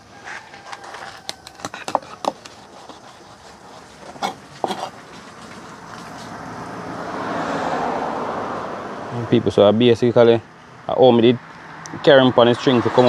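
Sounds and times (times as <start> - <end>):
knife chopping through fish: 1.2 - 4.9.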